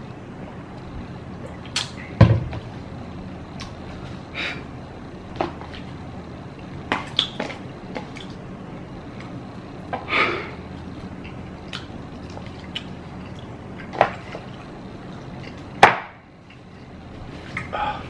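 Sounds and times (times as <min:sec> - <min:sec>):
wet chewing: 0:10.8 - 0:15.8.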